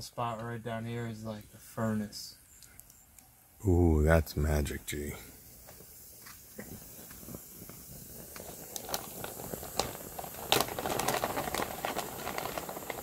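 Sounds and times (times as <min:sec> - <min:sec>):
burning marshmallow hissing: 0:01.2 - 0:13.0
campfire crackling and popping: 0:02.5 - 0:03.4, 0:04.9 - 0:13.0.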